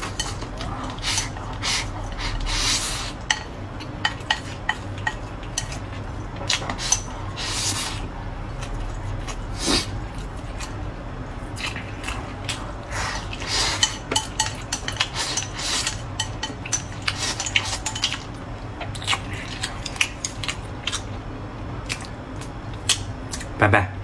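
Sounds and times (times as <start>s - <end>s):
chewing: 3.8s - 10.8s, 11.4s - 21.2s, 21.8s - 23.5s.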